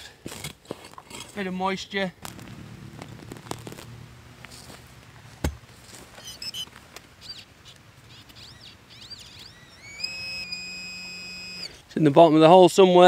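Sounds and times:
small birds chirping: 2.2s - 12.1s
metal detector steady high tone: 6.1s - 6.7s, 8.1s - 11.9s.

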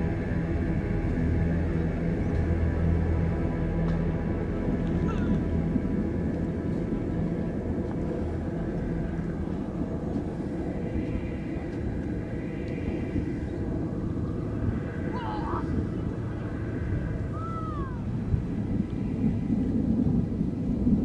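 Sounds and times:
low steady rumble: 0.0s - 21.0s.

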